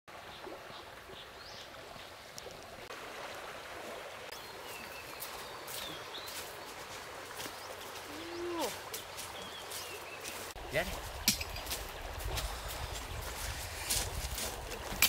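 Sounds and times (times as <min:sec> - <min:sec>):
soft forest hiss: 0:00.4 - 0:14.9.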